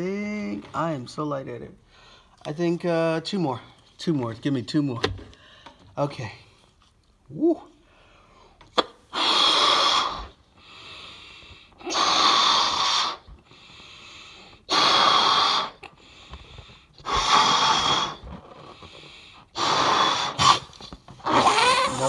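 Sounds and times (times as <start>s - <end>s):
quiet breathing: 1.8s - 2.5s, 5.3s - 6.8s, 7.7s - 8.7s, 10.0s - 14.7s, 15.3s - 20.2s
person blowing into balloon: 8.8s - 10.4s, 11.8s - 13.4s, 14.7s - 15.9s, 17.0s - 18.8s, 19.5s - 22.0s.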